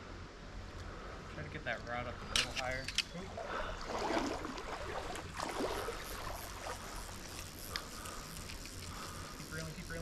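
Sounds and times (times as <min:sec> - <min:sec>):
river water flowing: 0:02.2 - 0:10.0
water sloshing: 0:03.2 - 0:09.4
water swishes: 0:03.2 - 0:10.0.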